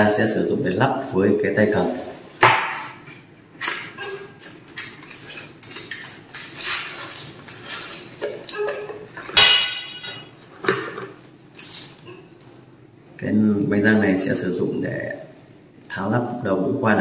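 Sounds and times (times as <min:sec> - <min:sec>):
packaging rustling: 0:03.6 - 0:09.4, 0:10.2 - 0:12.6.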